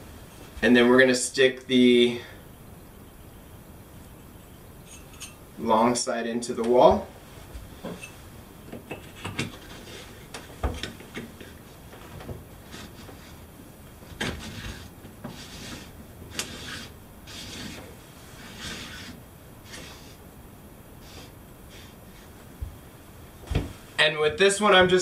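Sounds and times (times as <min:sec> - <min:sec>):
short hissing scrapes: 0:14.4 - 0:20.2, 0:21.0 - 0:22.4.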